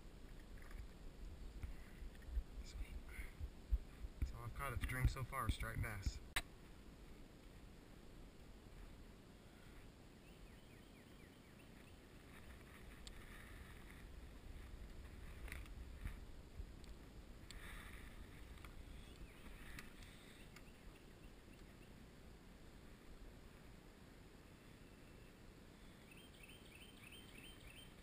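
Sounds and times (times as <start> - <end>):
kayak handling rumble: 12.1 - 20.8.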